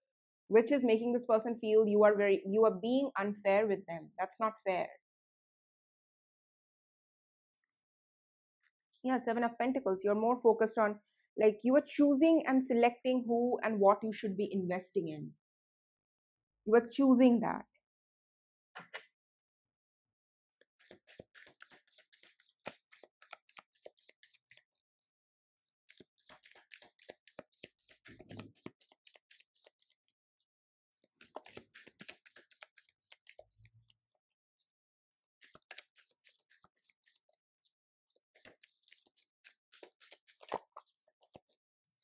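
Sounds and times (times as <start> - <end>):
cards being shuffled: 20.8 - 24.7, 25.9 - 30.0, 31.0 - 34.2, 35.4 - 37.4, 38.1 - 42.0.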